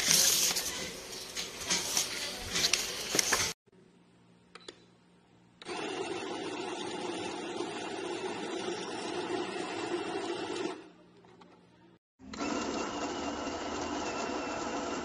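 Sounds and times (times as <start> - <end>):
coffee grinder motor grinding: 5.6 - 10.8, 12.2 - 15.0.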